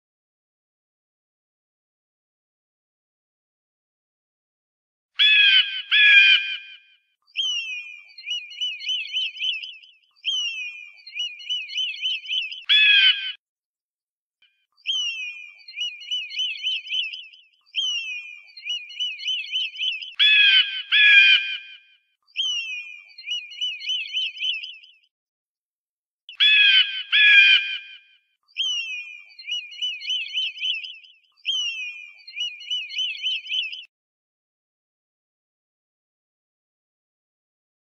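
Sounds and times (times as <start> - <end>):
eagle piping calls: 5.2 - 6.7, 7.4 - 13.4, 14.9 - 21.8, 22.4 - 24.8, 26.4 - 27.9, 28.6 - 33.9.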